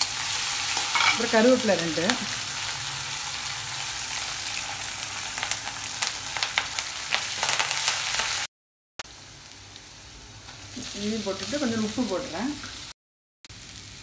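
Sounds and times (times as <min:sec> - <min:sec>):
curry leaves crackling in oil: 0:00.0 - 0:08.5
oil sizzling: 0:00.0 - 0:14.0.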